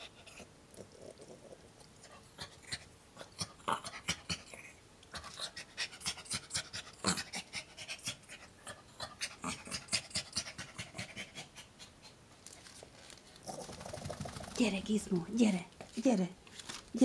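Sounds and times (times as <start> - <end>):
small dog panting: 0.0 - 12.2.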